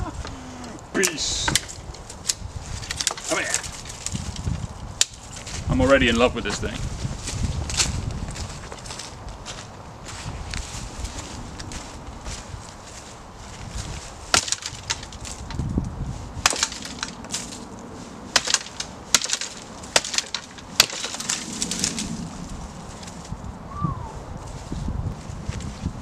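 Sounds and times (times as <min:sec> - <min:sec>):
twigs crackling: 0:00.0 - 0:26.0
dead wood cracking: 0:00.2 - 0:05.7, 0:14.2 - 0:23.4.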